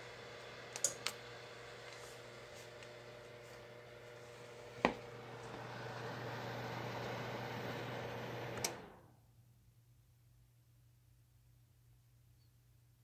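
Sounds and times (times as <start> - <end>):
electric heater hum and blower: 0.0 - 9.4.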